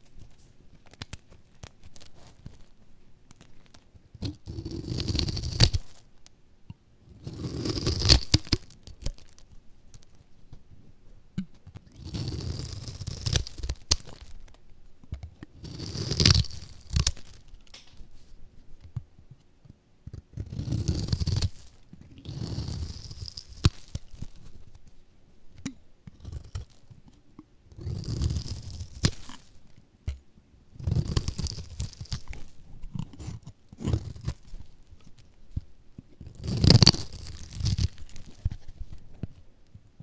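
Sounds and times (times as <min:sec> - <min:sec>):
knife cutting through dry soap: 0:04.2 - 0:06.0, 0:07.1 - 0:09.4, 0:11.9 - 0:14.3, 0:15.6 - 0:17.5, 0:20.1 - 0:24.4, 0:30.8 - 0:34.7, 0:36.2 - 0:38.6.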